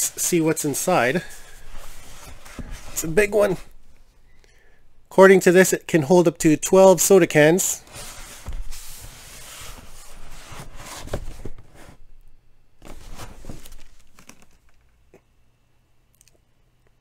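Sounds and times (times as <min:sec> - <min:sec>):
cardboard rubbing and scraping: 0:00.0 - 0:04.0, 0:07.8 - 0:12.1, 0:12.8 - 0:14.4.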